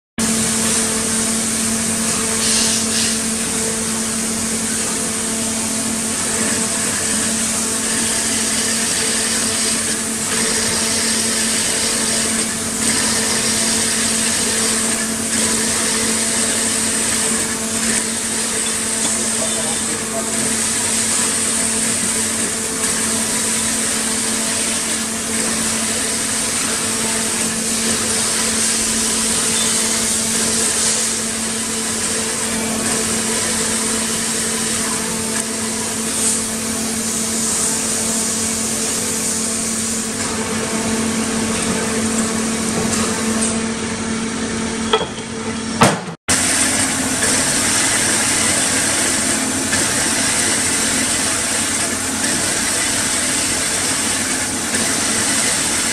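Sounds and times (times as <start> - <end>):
band saw motor humming: 0.2 - 45.6.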